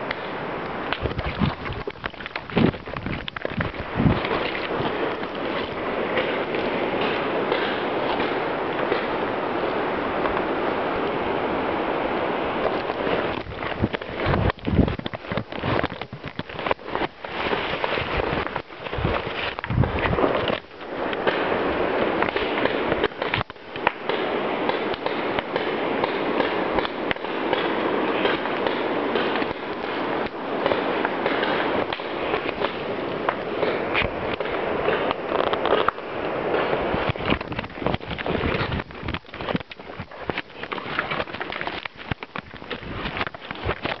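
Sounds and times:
microphone handling noise: 0:00.0 - 0:44.0.

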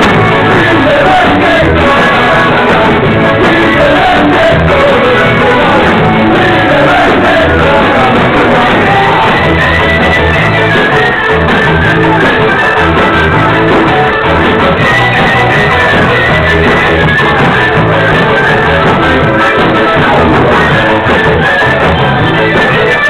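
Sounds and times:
shouted vocals: 0:00.0 - 0:13.5
bass pulse: 0:00.0 - 0:22.6
live rock band playing: 0:00.0 - 0:23.0.

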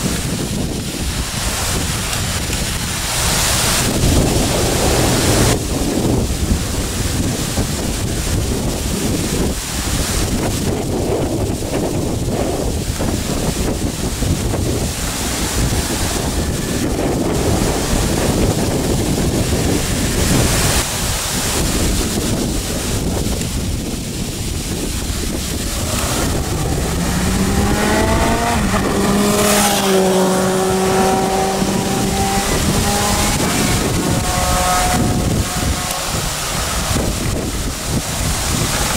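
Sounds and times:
wind buffeting microphone: 0:00.0 - 0:38.9
loud air horns: 0:25.7 - 0:37.0.

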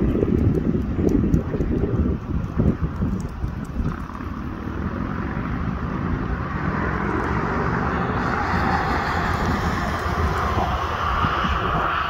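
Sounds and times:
freight train low rumble: 0:07.0 - 0:12.0.

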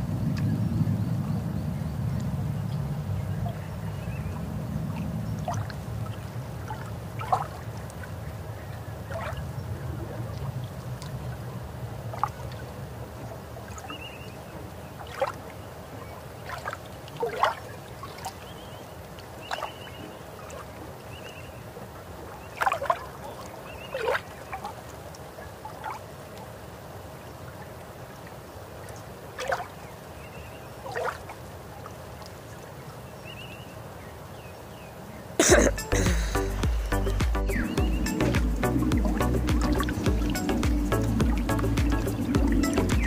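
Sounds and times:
water dripping and splashing: 0:04.4 - 0:32.8, 0:35.4 - 0:43.0
birds calling sharply: 0:34.4 - 0:43.0.

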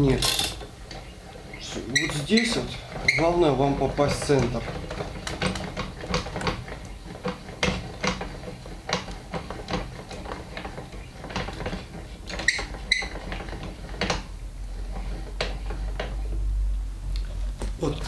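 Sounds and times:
metal clicks and knocks: 0:00.0 - 0:01.1, 0:03.9 - 0:14.3
short high squeaks: 0:01.0 - 0:03.5, 0:12.4 - 0:13.2.

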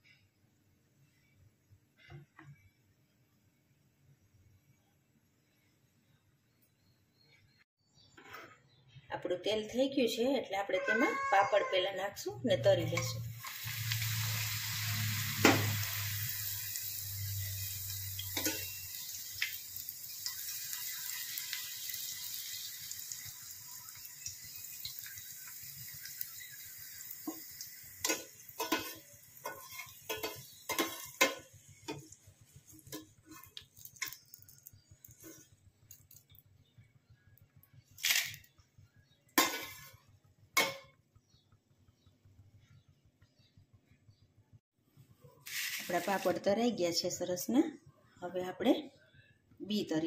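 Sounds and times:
food sizzling in hot oil: 0:12.8 - 0:36.4, 0:38.0 - 0:38.5, 0:39.4 - 0:40.9, 0:45.4 - 0:46.5
metal spoon scraping steel pan: 0:16.8 - 0:19.2, 0:28.0 - 0:32.1, 0:39.4 - 0:40.0.

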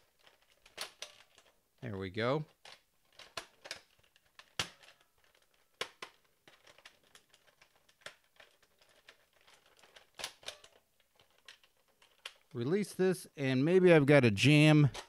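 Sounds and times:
plastic toy blaster clicking and rattling: 0:02.5 - 0:12.5.

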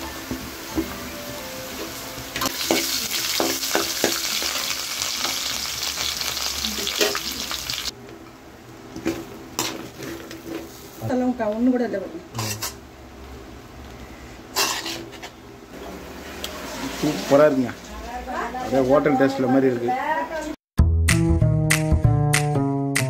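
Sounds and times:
vegetables sizzling in hot oil: 0:00.0 - 0:07.9.

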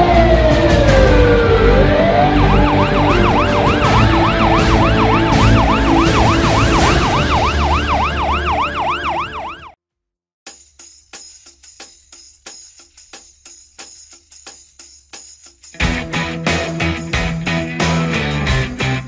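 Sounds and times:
ambulance siren wailing and yelping: 0:00.0 - 0:09.8.

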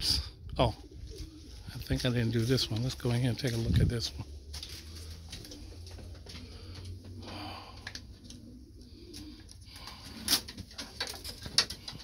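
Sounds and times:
pigeons cooing: 0:00.0 - 0:12.0.

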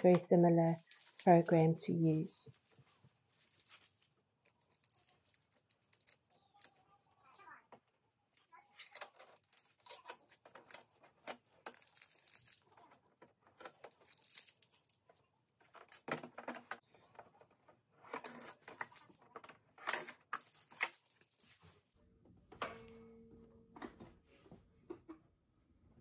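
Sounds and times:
tape being peeled off: 0:03.3 - 0:06.8, 0:08.7 - 0:13.0, 0:13.6 - 0:15.0.

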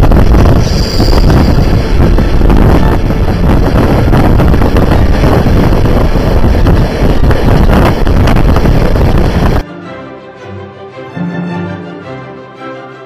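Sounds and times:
train running rumble: 0:00.0 - 0:09.6
wind buffeting microphone: 0:00.0 - 0:09.6.

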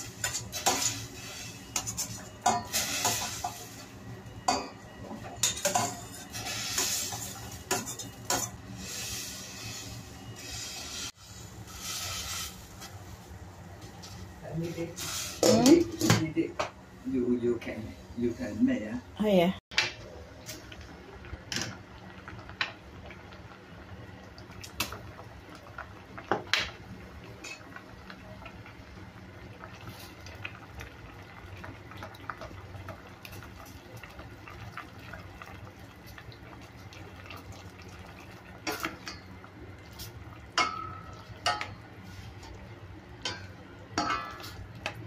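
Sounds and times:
liquid simmering: 0:20.5 - 0:45.0.

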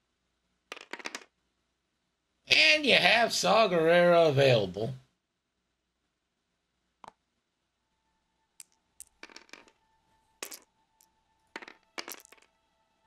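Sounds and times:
plastic dice rolling on mat: 0:00.7 - 0:01.4, 0:08.6 - 0:09.8, 0:10.4 - 0:12.6.

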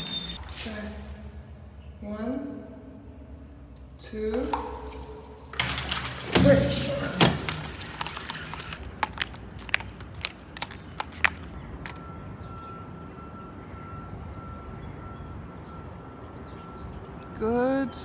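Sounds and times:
low outdoor hum: 0:00.0 - 0:18.0
flip-flops slapping on paving stones: 0:06.6 - 0:11.6.

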